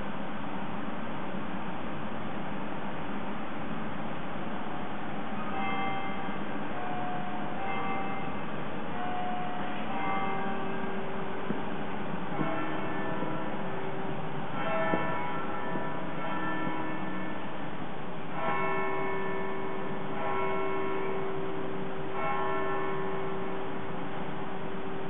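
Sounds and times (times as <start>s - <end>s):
church bells ringing: 5.2s - 25.0s.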